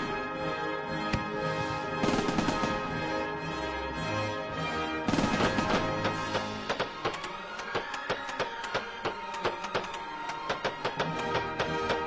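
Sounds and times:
background music: 0.0s - 12.0s
fireworks bursting and crackling: 2.0s - 3.1s, 5.1s - 12.0s
sharp pops: 5.2s - 12.0s.

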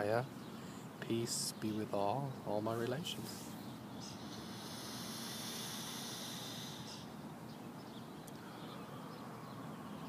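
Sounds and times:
faint chirps: 4.0s - 7.2s.

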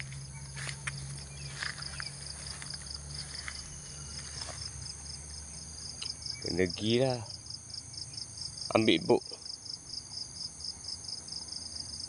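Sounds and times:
rustling through grass: 0.0s - 6.0s
insects chirping: 0.0s - 12.0s
low steady hum: 0.0s - 12.0s.

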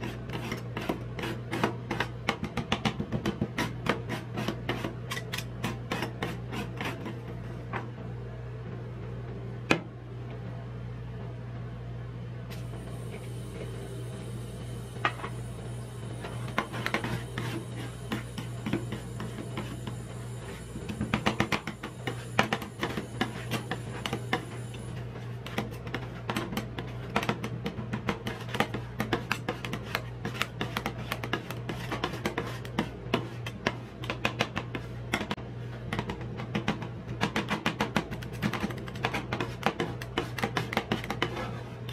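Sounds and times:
refrigeration machine hum: 7.2s - 31.0s.

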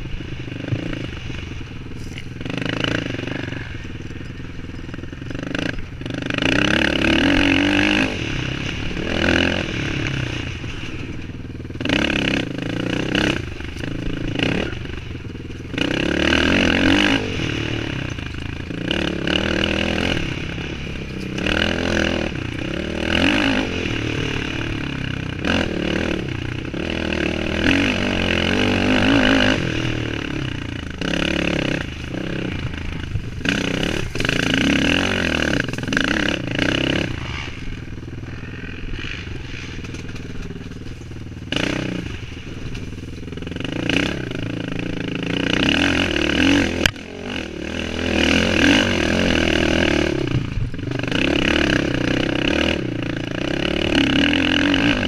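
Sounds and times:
quad bike engine revving: 0.0s - 55.0s.

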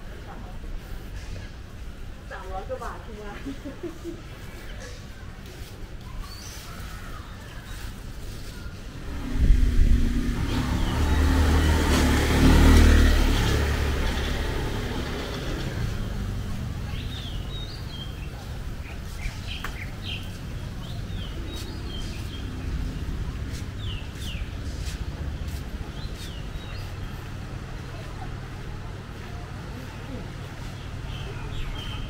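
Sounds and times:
distant traffic hum: 0.0s - 32.0s
birds chirping: 6.0s - 32.0s
motorbike engine passing: 8.9s - 18.1s.

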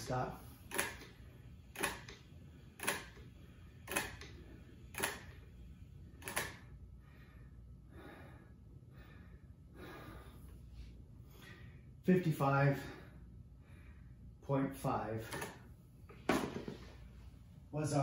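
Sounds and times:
sharp mechanical clicks: 0.6s - 5.4s, 6.2s - 6.7s, 15.3s - 15.6s.

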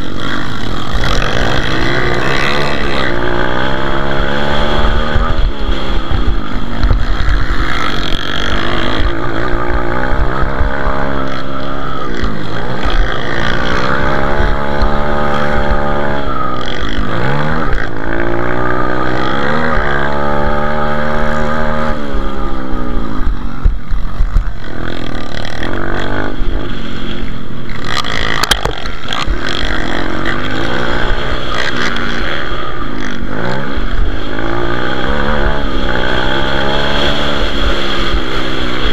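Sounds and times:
motorbike engine revving: 0.0s - 38.9s.

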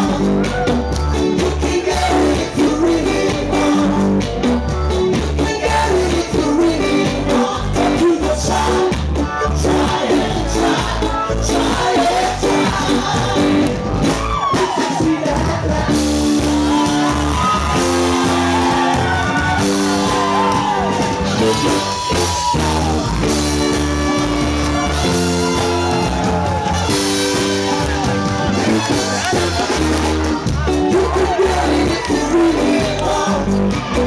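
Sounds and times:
person singing: 0.0s - 19.0s, 27.4s - 34.0s
reggae band playing: 0.0s - 34.0s.

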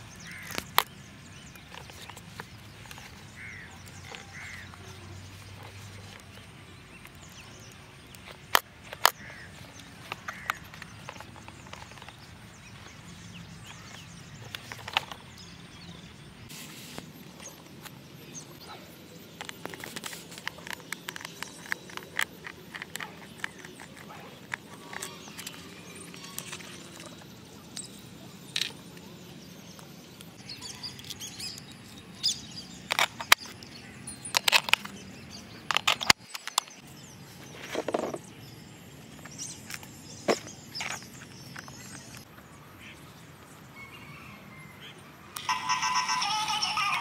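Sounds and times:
screwdriver clicks and scrapes: 19.4s - 27.1s, 35.7s - 36.8s
sharp plastic clicks: 35.6s - 36.8s.

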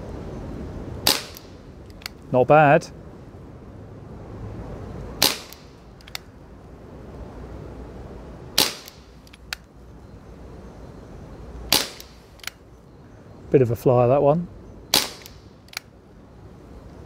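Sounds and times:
air pistol sharp cracks: 1.0s - 2.2s, 5.2s - 6.3s, 8.6s - 9.7s, 11.7s - 12.6s, 14.9s - 15.9s.

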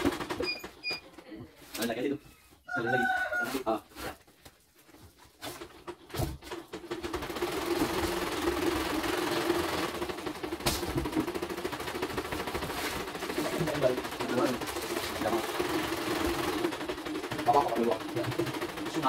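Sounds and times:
embroidery machine stitching: 0.0s - 1.0s, 5.4s - 19.0s.

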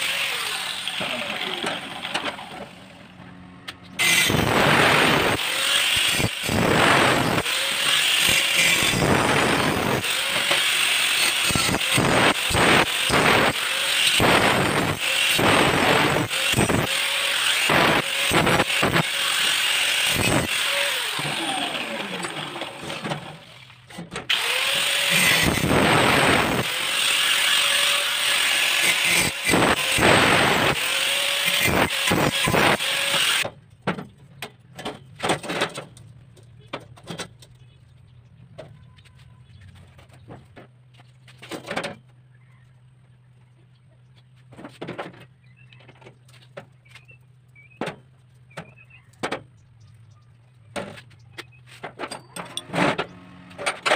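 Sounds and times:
angle grinder grinding steel: 0.0s - 2.8s, 3.7s - 23.2s, 24.3s - 33.5s.

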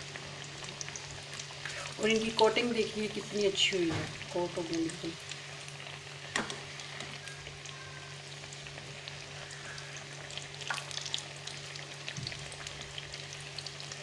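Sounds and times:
eggplant slices deep-frying in oil: 0.0s - 14.0s
faint hum: 0.0s - 14.0s.

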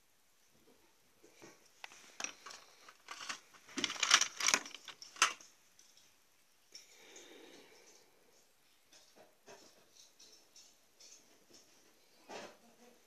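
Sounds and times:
paper rustling: 1.8s - 5.4s
craft tools scratching: 2.2s - 5.4s.

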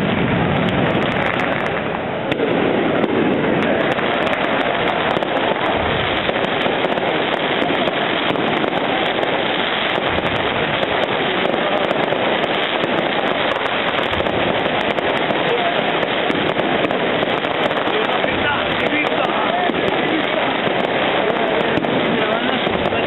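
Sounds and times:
fireworks bursting and crackling: 0.0s - 23.0s.

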